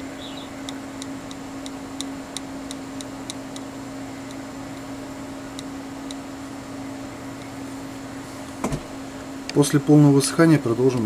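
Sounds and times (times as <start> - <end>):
low electrical hum: 0.0 - 11.0
light sharp ticks: 0.6 - 4.9, 5.6 - 6.2.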